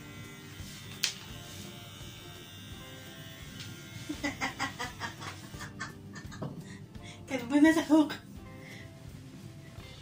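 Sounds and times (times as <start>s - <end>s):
hair clippers buzzing: 0.0s - 5.7s.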